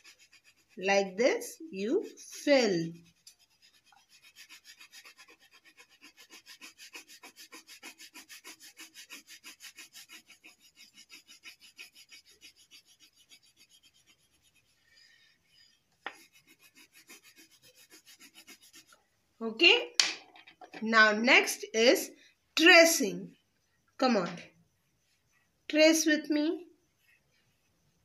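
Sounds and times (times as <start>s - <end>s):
crayon scribbling on paper: 0.0s - 15.2s, 16.1s - 19.0s.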